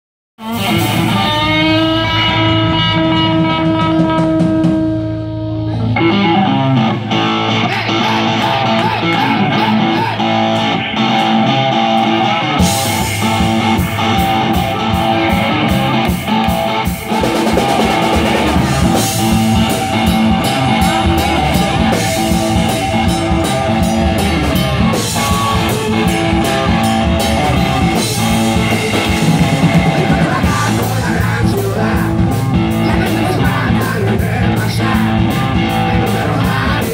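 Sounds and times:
bass guitar: 0:00.4 - 0:36.9
electric guitar riff: 0:00.4 - 0:36.9
drums with cymbals: 0:12.6 - 0:36.9.

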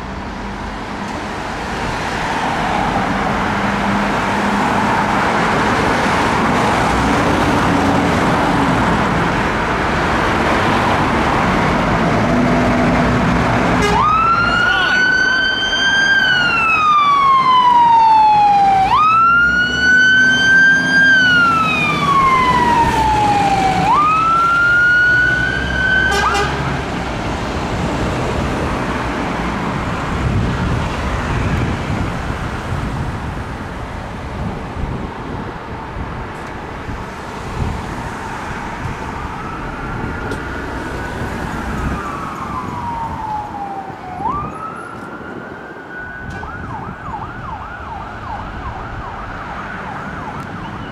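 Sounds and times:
traffic noise: 0:00.0 - 0:50.9
siren wailing: 0:13.8 - 0:26.6, 0:39.1 - 0:50.9.

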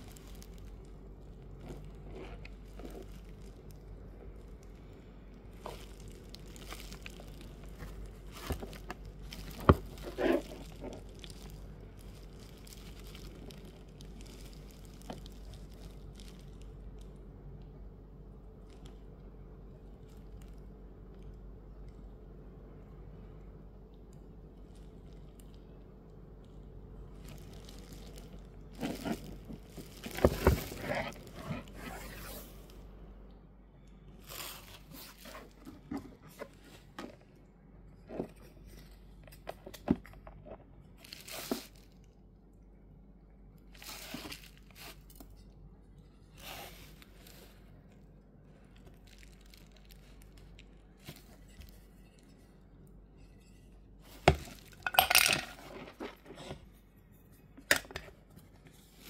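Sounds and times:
hands handling a figure: 0:05.5 - 0:11.6, 0:27.2 - 0:32.8.

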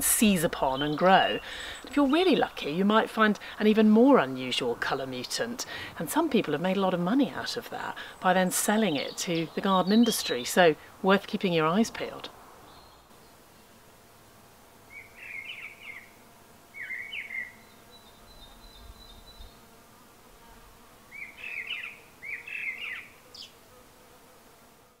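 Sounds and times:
faint outdoor background hiss: 0:00.0 - 0:25.0
songbird warbling: 0:08.0 - 0:10.7, 0:14.9 - 0:16.1, 0:16.8 - 0:19.5, 0:21.1 - 0:23.5.

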